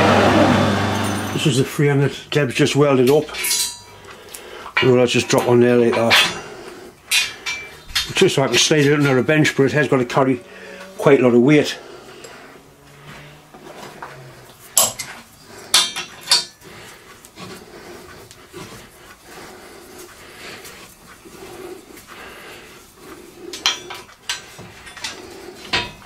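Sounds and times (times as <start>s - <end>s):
spanner clinking on metal: 3.0s - 9.1s, 14.8s - 16.6s, 23.6s - 26.0s.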